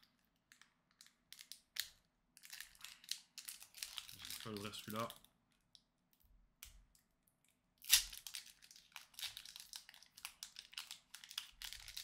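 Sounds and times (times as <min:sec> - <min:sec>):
foil wrapper ripping: 0:07.9 - 0:12.0.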